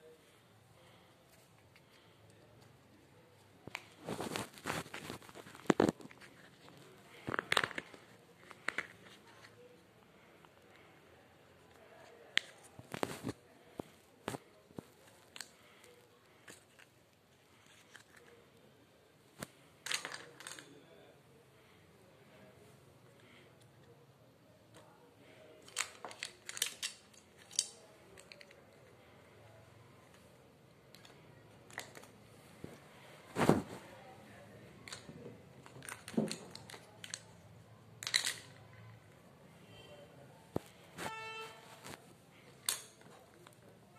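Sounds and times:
plastic items clicking: 19.8s - 20.7s, 25.6s - 28.9s, 30.9s - 32.2s, 34.8s - 37.4s, 38.0s - 38.6s.

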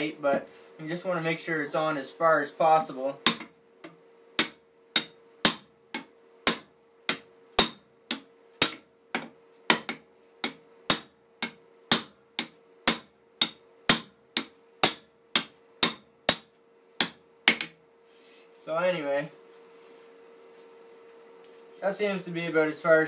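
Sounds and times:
hammer striking axe handle: 3.2s - 17.8s.

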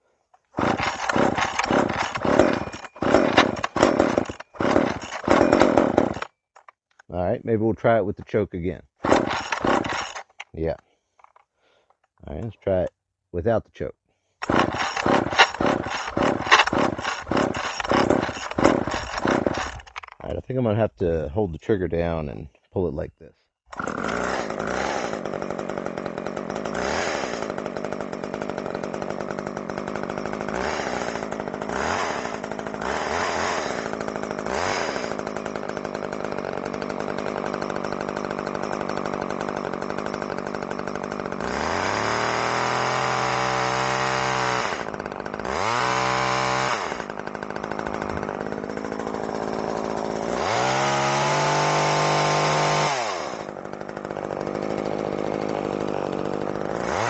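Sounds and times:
chainsaw running and revving: 0.5s - 6.7s, 9.0s - 11.4s, 14.4s - 20.4s, 23.7s - 57.0s.

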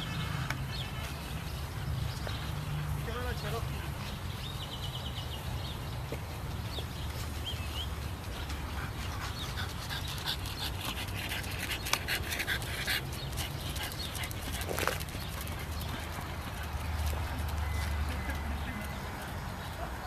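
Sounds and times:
dog panting: 7.8s - 18.9s.

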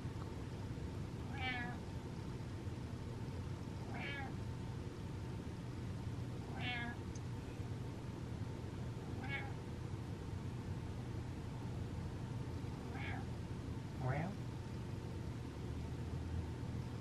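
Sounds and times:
cat meowing high-pitched: 1.3s - 1.8s, 3.9s - 4.4s, 6.5s - 7.0s, 9.2s - 9.6s, 12.9s - 13.3s.

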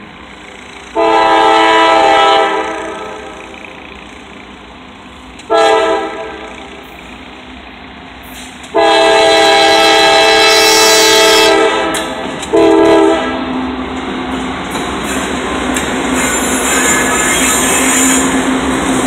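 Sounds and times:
locomotive engine rumble: 0.0s - 10.4s, 11.2s - 19.0s
train wheels on rails: 0.0s - 19.0s
locomotive air horn blasts: 1.0s - 3.3s, 5.5s - 6.5s, 8.7s - 13.4s.

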